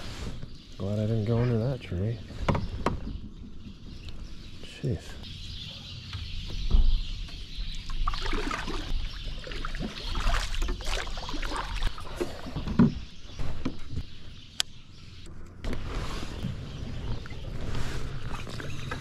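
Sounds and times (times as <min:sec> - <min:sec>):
water sloshing: 0:07.8 - 0:12.6.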